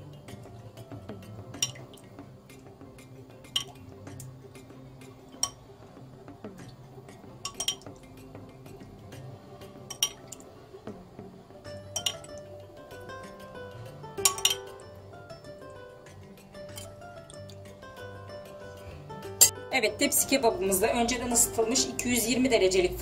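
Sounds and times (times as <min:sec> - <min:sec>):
metal spoon clinking on glass bowl: 0:01.6 - 0:01.9, 0:07.4 - 0:08.0, 0:09.9 - 0:10.4, 0:11.8 - 0:12.4, 0:14.2 - 0:14.8
spoon clinking on metal tray: 0:01.6 - 0:01.9, 0:07.4 - 0:08.0, 0:09.9 - 0:10.4, 0:11.8 - 0:12.4, 0:14.2 - 0:14.8.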